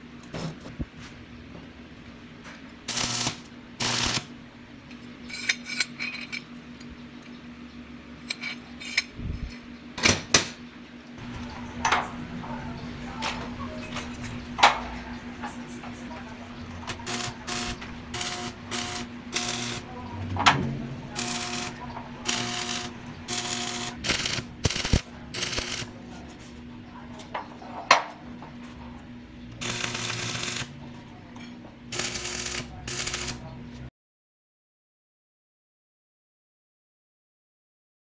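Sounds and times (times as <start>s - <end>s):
steady hum: 0.0s - 33.9s
arc welding crackling and hissing: 2.8s - 4.4s, 11.2s - 20.1s, 21.0s - 26.7s, 29.5s - 31.2s, 31.8s - 33.9s.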